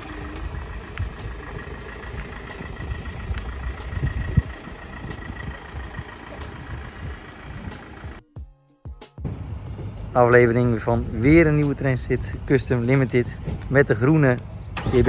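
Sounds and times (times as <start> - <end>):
diesel van engine running: 0.0 - 8.2, 9.2 - 15.0.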